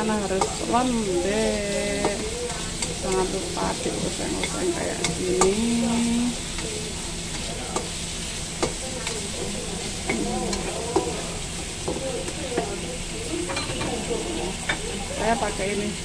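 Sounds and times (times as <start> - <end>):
vegetables sizzling in oil: 0.0 - 16.0
spatula tapping and scraping pan: 0.3 - 5.8, 6.4 - 8.0, 8.6 - 11.2.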